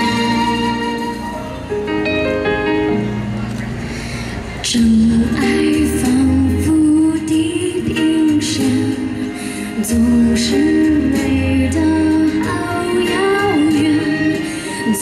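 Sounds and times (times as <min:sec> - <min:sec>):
backing music with steady beat: 0:00.0 - 0:03.4, 0:04.4 - 0:15.0
woman singing into microphone: 0:04.6 - 0:15.0.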